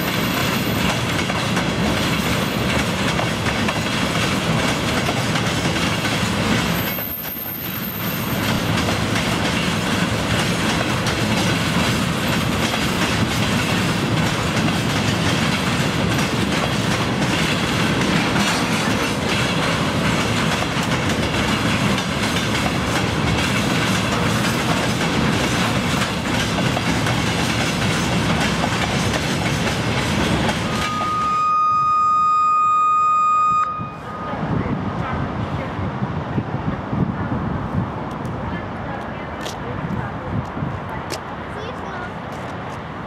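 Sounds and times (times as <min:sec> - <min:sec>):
train wheels clattering over rail joints: 0:00.0 - 0:31.0
steady high tone: 0:30.7 - 0:34.8.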